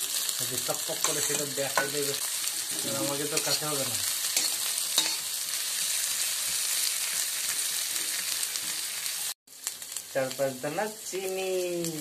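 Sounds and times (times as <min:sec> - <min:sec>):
onions sizzling in hot oil: 0:00.0 - 0:12.0
metal spatula stirring: 0:00.8 - 0:06.6.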